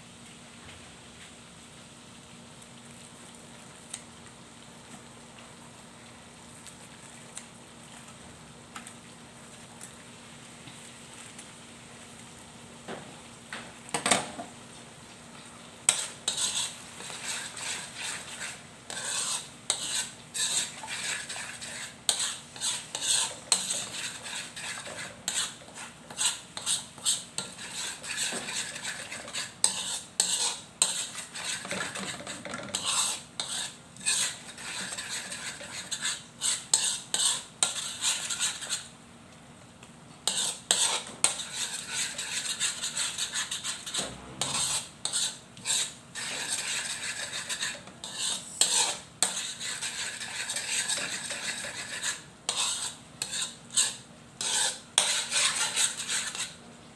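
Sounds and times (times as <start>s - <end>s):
sauce sizzling: 1.0s - 39.1s, 40.3s - 56.8s
metal spoon scraping a wok: 15.9s - 38.9s, 40.2s - 56.6s.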